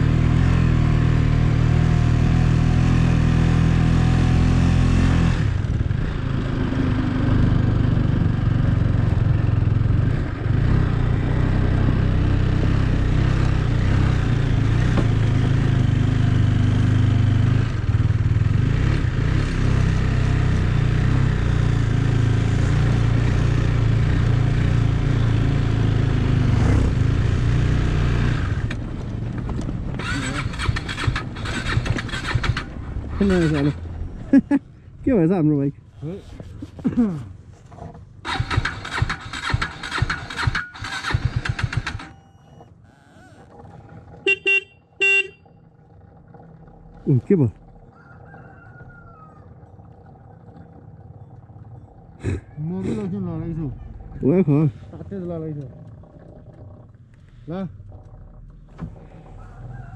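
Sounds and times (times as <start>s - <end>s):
motorcycle engine running: 0.0s - 47.9s.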